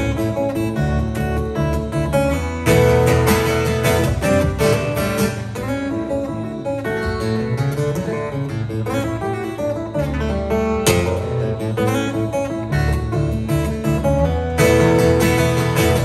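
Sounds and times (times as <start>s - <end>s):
acoustic guitar playing: 0.0s - 16.0s.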